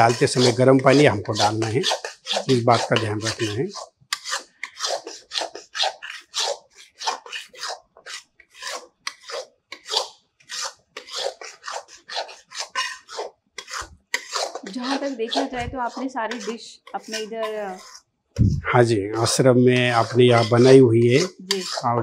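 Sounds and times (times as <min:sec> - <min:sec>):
spatula scraping metal pan: 0:00.0 - 0:18.1, 0:18.8 - 0:22.0.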